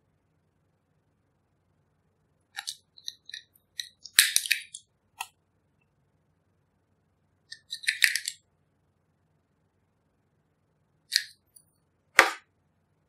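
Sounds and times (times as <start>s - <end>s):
plastic tube clicking: 7.5s - 8.4s.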